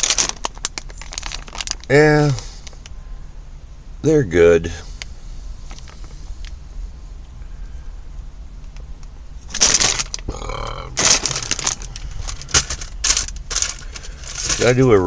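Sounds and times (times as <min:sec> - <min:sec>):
plastic packaging crinkling: 0:00.0 - 0:02.9, 0:09.5 - 0:10.3, 0:10.9 - 0:15.0
low steady hum: 0:00.0 - 0:15.0.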